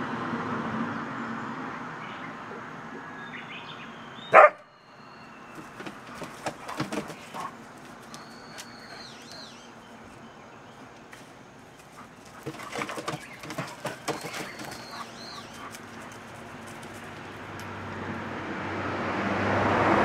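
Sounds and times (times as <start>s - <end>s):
sharp dog sounds: 4.3s - 4.7s, 11.9s - 16.4s
dogs scuffling: 5.5s - 10.2s, 11.1s - 17.6s
bird whistling: 8.1s - 9.7s.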